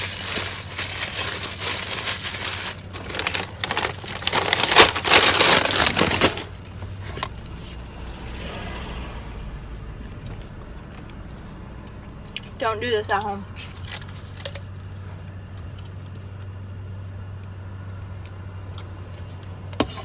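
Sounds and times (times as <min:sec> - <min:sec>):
paper wrapper crinkling: 0:00.0 - 0:06.7.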